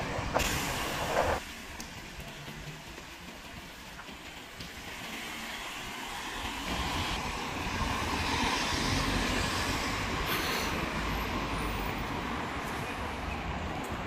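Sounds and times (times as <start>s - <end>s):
street rumble: 0.0s - 14.0s
hiss: 0.3s - 1.6s, 8.3s - 11.2s.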